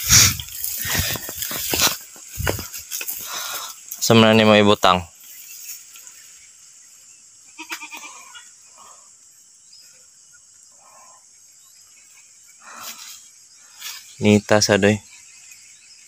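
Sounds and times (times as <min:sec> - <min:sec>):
goat bleating faintly: 0:07.6 - 0:08.4.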